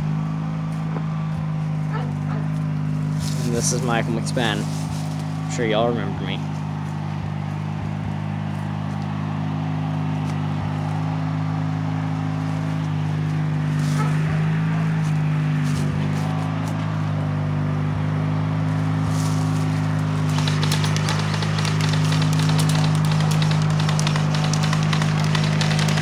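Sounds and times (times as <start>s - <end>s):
faint rustles: 4.5s - 5.5s
motor humming: 19.9s - 26.0s.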